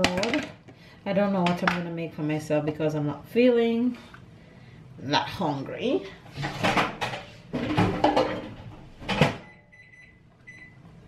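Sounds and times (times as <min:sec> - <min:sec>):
kitchen items knocking: 0:00.0 - 0:00.6, 0:06.4 - 0:09.4
microwave oven beeps: 0:09.4 - 0:11.0.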